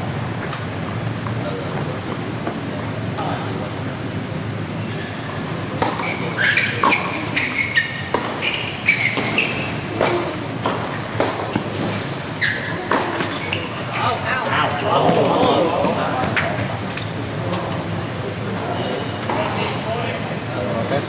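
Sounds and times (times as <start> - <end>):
sneakers squeaking: 4.8 - 17.8, 18.6 - 19.8
tennis ball bouncing: 5.8 - 13.9
rackets striking tennis ball: 5.8 - 14.1.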